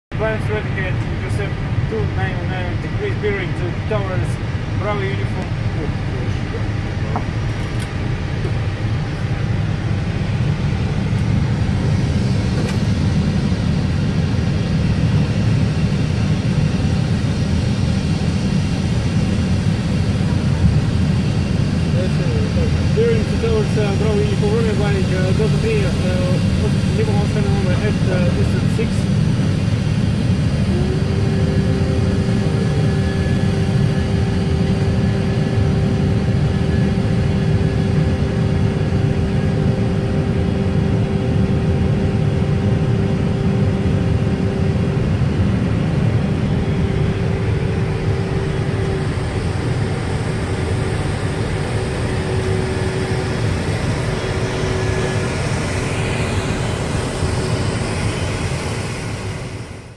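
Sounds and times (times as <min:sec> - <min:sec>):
jet engine low rumble: 0:00.1 - 0:59.9
jet engine whine: 0:00.1 - 0:59.9.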